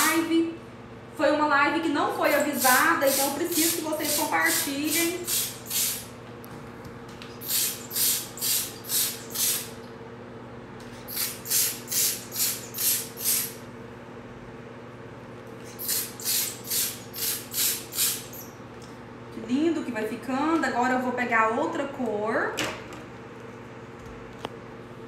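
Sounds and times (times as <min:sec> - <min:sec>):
paint sprayer hissing: 0:02.2 - 0:06.1, 0:07.4 - 0:09.8, 0:11.0 - 0:13.6, 0:15.6 - 0:18.6.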